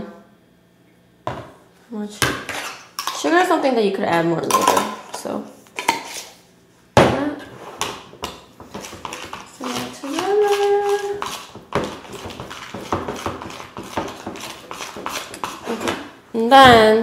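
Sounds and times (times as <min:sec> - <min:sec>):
spoon scraping ceramic bowl: 0:02.5 - 0:03.3, 0:05.8 - 0:06.4, 0:07.6 - 0:16.1
person humming: 0:09.6 - 0:11.2.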